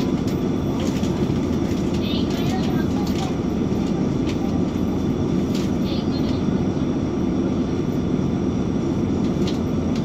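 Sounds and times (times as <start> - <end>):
bus engine idling: 0.0 - 10.0.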